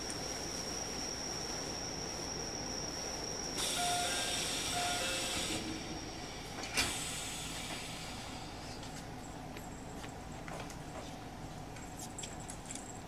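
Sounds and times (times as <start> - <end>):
air hissing: 3.6 - 8.7.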